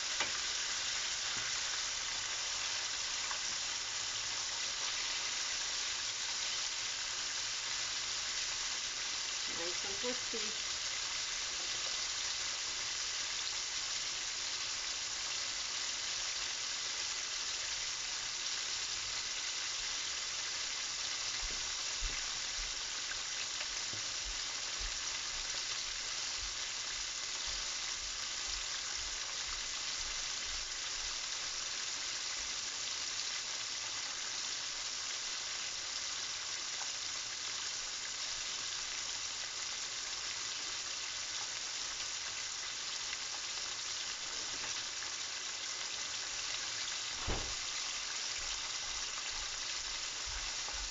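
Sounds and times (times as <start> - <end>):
chicken deep-frying in oil: 0.0 - 50.9.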